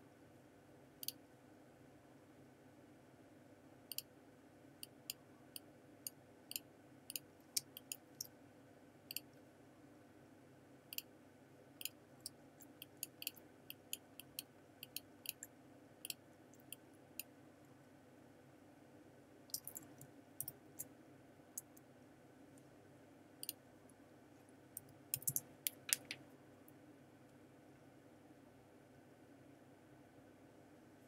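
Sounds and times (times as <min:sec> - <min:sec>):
faint background hum: 0:00.0 - 0:31.0
computer mouse clicking: 0:01.0 - 0:01.2, 0:03.9 - 0:04.1, 0:09.1 - 0:09.3, 0:12.6 - 0:16.8, 0:25.1 - 0:26.2.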